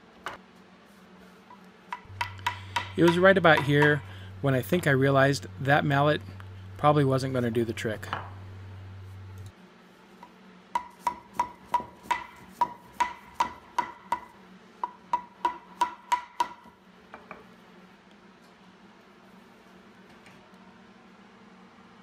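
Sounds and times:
wooden mallet knocking wood: 1.9s - 4.0s, 10.8s - 16.6s.

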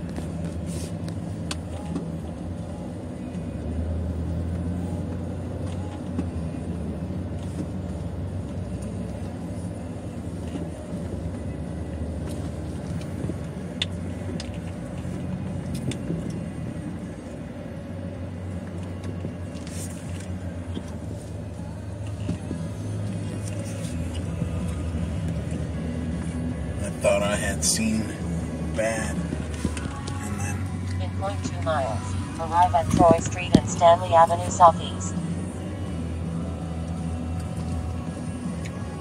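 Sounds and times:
car engine and road hum: 0.0s - 39.0s.

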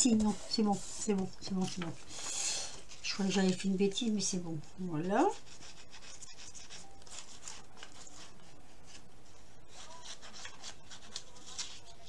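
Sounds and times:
glue stick rubbing on paper: 5.2s - 9.0s, 9.7s - 12.0s.

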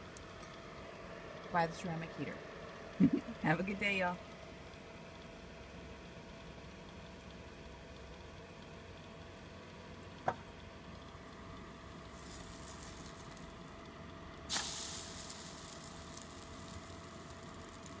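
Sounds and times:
toast sizzling in a frying pan: 10.9s - 18.0s.

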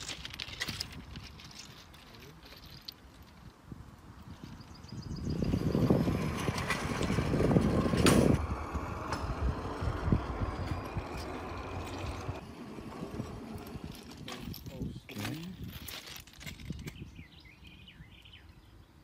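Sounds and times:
trolley wheels rattling on rails: 5.3s - 16.9s.

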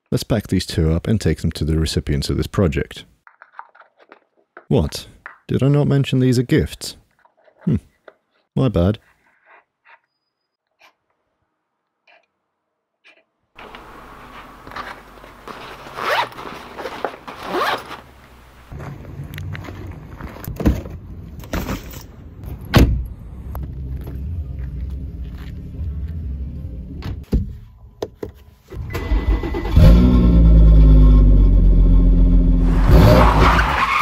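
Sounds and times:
boxes scraping on a mat: 13.6s - 18.6s
car engine starting: 28.8s - 33.9s.

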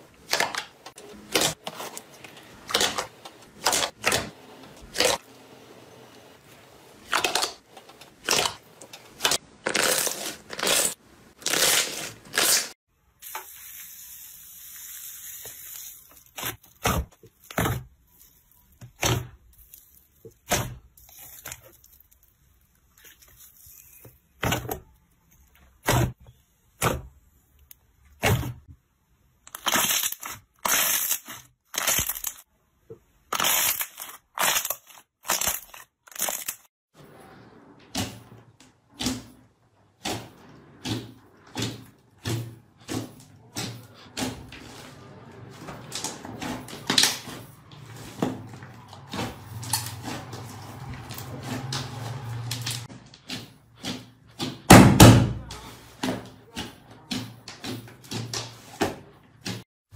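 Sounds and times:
slime squishing and crackling: 29.5s - 32.4s, 33.3s - 36.7s.

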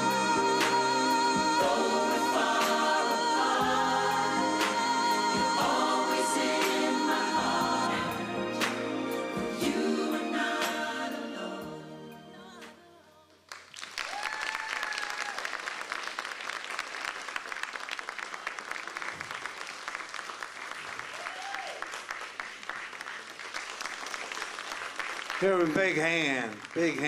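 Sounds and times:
music: 0.0s - 13.2s
audience applauding: 13.5s - 27.0s.

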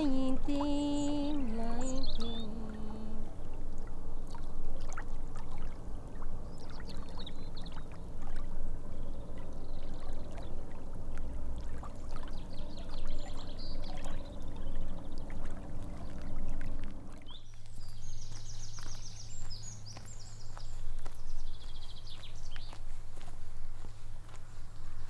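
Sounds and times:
water trickling and lapping: 0.0s - 25.0s
high bird chirps: 0.8s - 2.6s.

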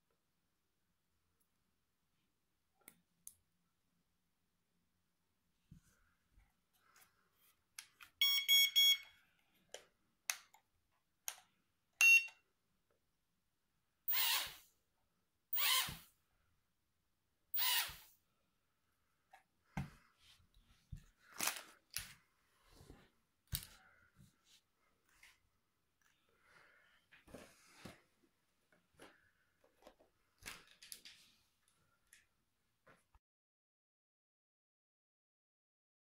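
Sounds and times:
controller beeps: 8.2s - 9.1s, 12.0s - 12.3s.

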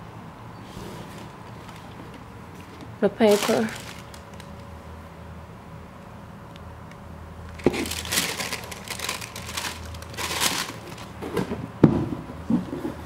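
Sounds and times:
tissue paper crinkling: 1.1s - 4.8s, 7.5s - 11.2s.

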